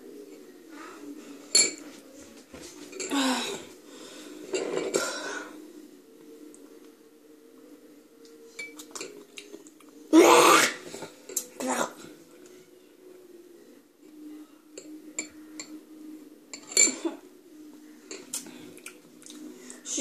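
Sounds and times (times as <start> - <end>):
spoon clinking porcelain bowl: 14.8 - 15.8.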